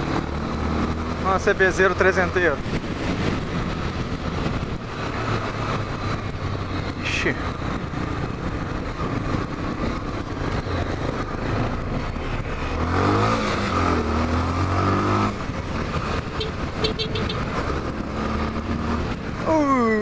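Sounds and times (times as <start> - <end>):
wind rush on microphone: 2.4 - 19.5
motorcycle engine running: 15.2 - 20.0.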